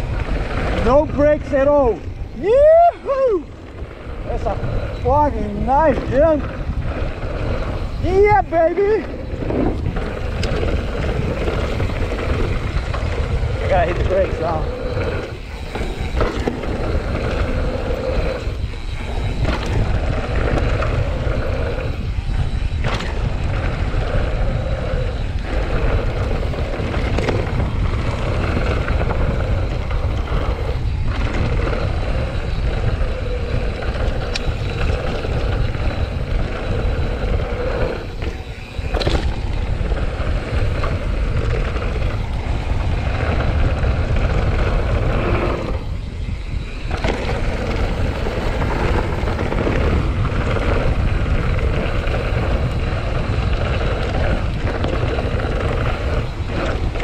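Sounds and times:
bike tyres rolling on gravel: 0.0 - 57.0
wind on microphone: 0.0 - 57.0
small knocks from bike: 22.8 - 23.2, 26.9 - 28.2, 38.2 - 39.6.

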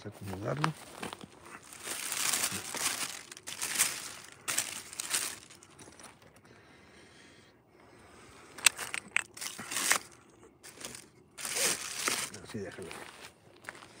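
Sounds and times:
cellophane and paper crinkling: 1.6 - 6.3, 8.8 - 12.4.

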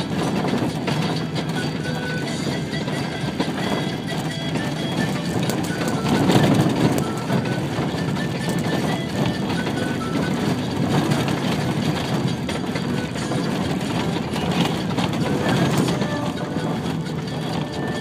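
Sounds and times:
bus engine and road noise: 0.0 - 18.0.

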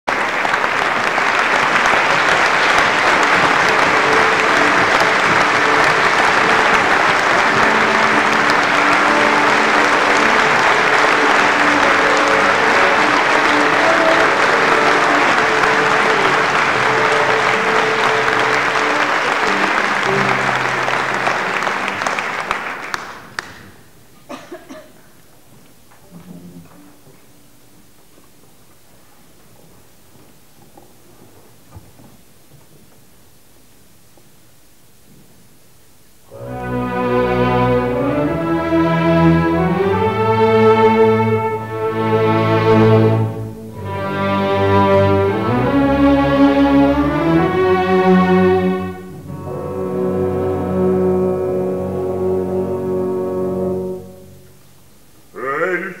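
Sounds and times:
audience applauding: 0.0 - 32.5, 36.3 - 54.0
low sustained instrumental notes: 2.4 - 22.0, 36.3 - 54.7.

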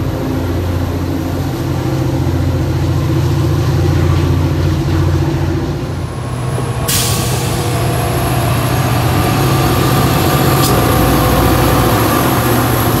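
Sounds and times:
locomotive engine drone: 0.0 - 13.0
steady higher tones: 0.0 - 13.0.

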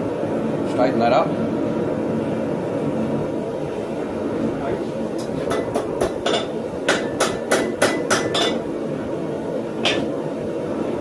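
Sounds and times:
hammer striking steel on anvil: 5.2 - 8.7, 9.8 - 10.1.

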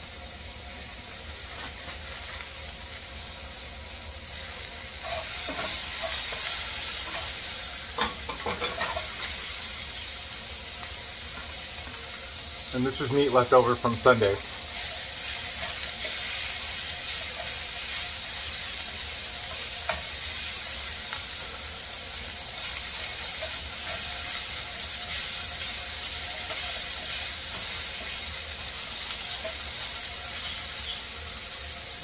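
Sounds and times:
food sizzling in a frying pan: 0.0 - 32.0
spatula stirring food: 4.9 - 9.4, 14.5 - 31.0.

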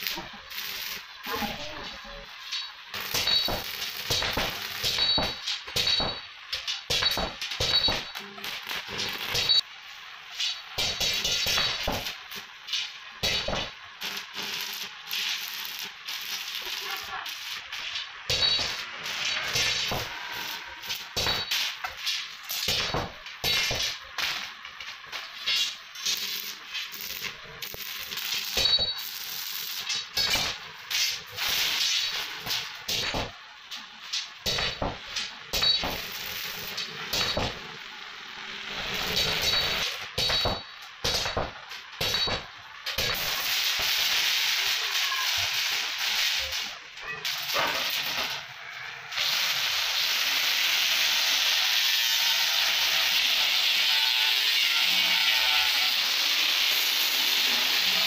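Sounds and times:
welding arc crackling and sizzling: 0.0 - 58.0
angle grinder grinding steel: 47.3 - 58.0.

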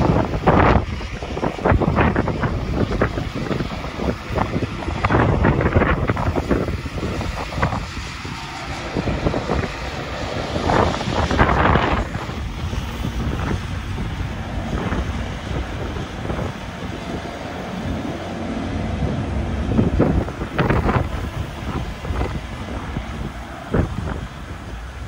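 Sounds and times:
diesel locomotives passing: 0.0 - 25.0
freight train running past: 0.0 - 25.0
wind buffeting microphone: 0.0 - 25.0.

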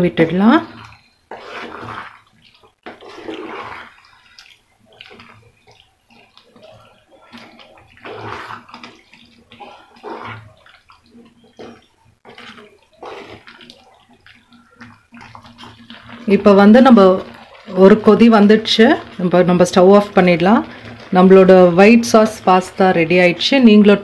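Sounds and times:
wooden spatula stirring pasta: 0.0 - 24.0.

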